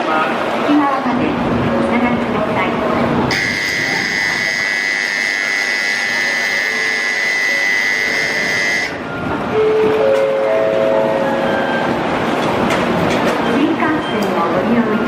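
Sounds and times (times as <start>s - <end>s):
high electronic warning tone: 3.3s - 9.1s
lower electronic tone: 3.3s - 9.8s.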